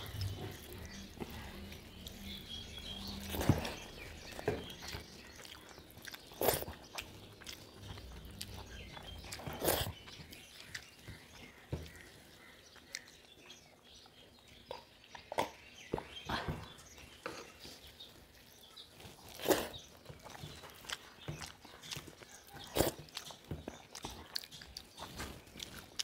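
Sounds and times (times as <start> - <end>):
people chewing: 0.0 - 26.0.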